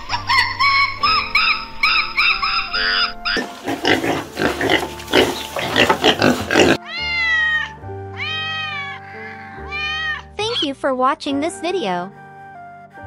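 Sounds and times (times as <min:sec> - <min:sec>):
piglets squealing: 0:00.0 - 0:10.6
background music: 0:00.0 - 0:13.0
cat meowing: 0:06.8 - 0:10.3.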